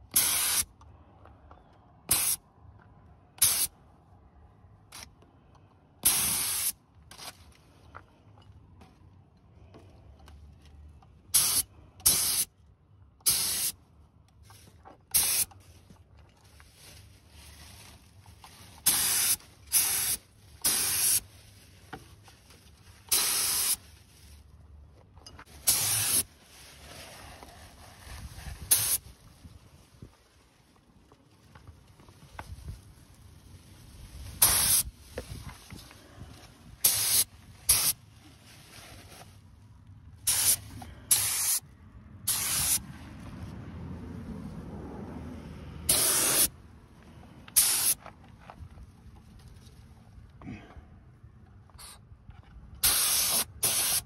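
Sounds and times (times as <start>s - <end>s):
paint spray gun hissing: 0.2s - 0.6s, 6.0s - 6.7s, 11.4s - 12.5s, 13.3s - 13.7s, 15.2s - 15.5s, 18.9s - 21.2s, 23.1s - 23.8s, 25.7s - 26.2s, 28.7s - 29.0s, 34.4s - 34.9s, 36.8s - 38.0s, 40.3s - 41.6s, 42.3s - 42.8s, 45.9s - 46.5s, 47.6s - 48.0s, 52.8s - 54.0s.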